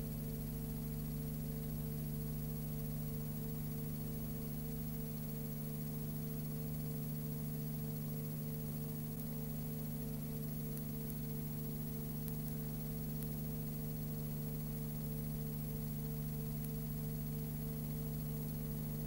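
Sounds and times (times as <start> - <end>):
steady electrical hum: 0.0 - 19.0.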